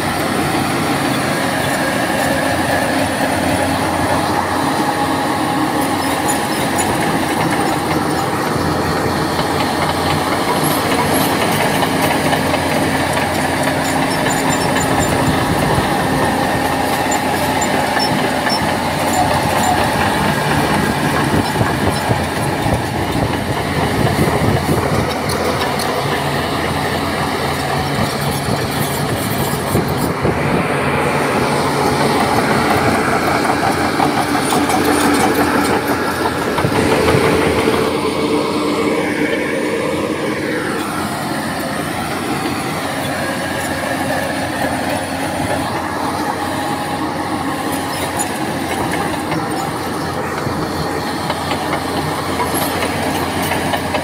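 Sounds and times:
diesel engine running under load: 0.0s - 54.0s
steel tracks clanking: 0.0s - 54.0s.

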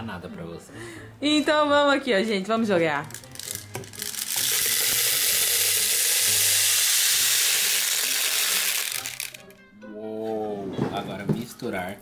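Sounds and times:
plastic beads pouring into a bowl: 3.1s - 9.5s.

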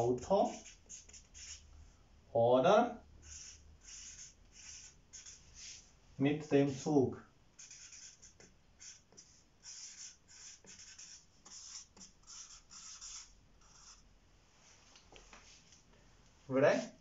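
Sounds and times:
marker pen scratching on whiteboard: 0.0s - 1.6s, 3.2s - 6.9s, 7.6s - 14.0s.

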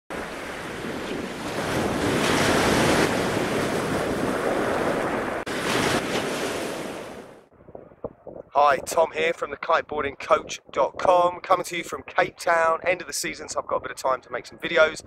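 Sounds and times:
rushing water: 0.1s - 7.4s
wind buffeting microphone: 0.1s - 15.0s.

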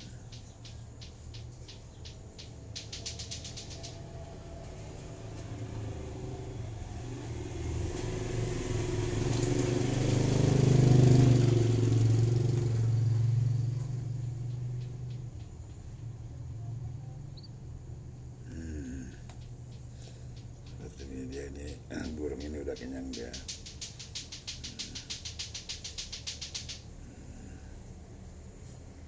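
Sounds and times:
vehicle engine passing: 0.0s - 28.7s
short high ticks: 22.8s - 26.9s.

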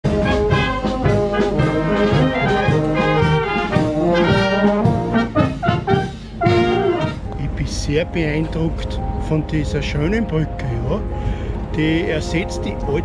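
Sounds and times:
marching brass band playing: 0.0s - 7.6s.

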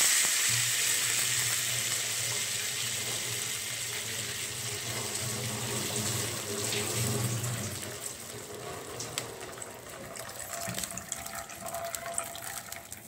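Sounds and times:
water pouring into pot: 0.0s - 13.0s.

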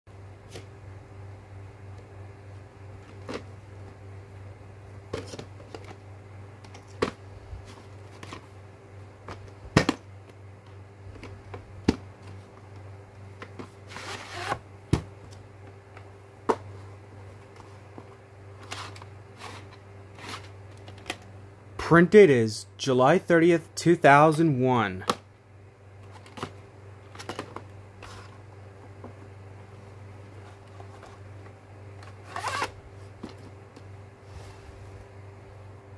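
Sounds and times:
steady low hum: 0.1s - 35.9s
cassette sliding out of sleeve: 32.0s - 32.8s.

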